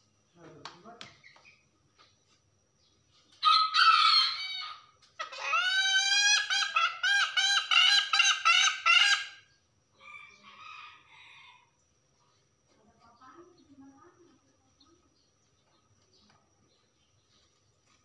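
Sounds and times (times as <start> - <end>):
hen cackling: 3.4 - 11.6.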